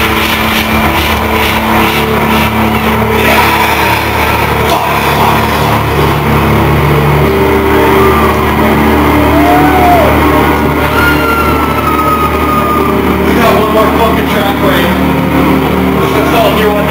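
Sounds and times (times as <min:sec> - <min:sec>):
distorted electronic drone: 0:00.0 - 0:16.9
gliding synth notes: 0:00.0 - 0:16.9.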